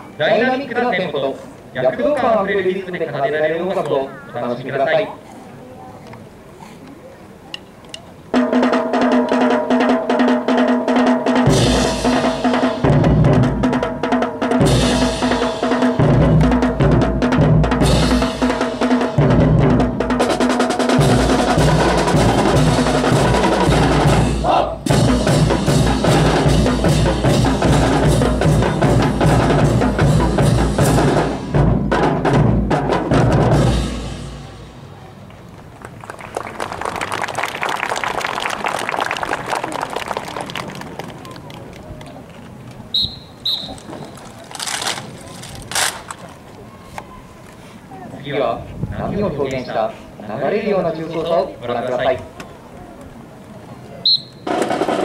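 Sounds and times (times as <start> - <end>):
marching drum line: 8.3 - 34.9, 43.0 - 46.0, 54.4 - 55.0.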